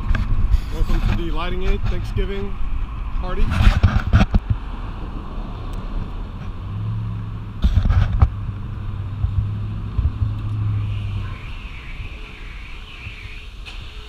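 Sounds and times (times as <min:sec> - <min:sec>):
drone motors humming: 0:06.2 - 0:14.0.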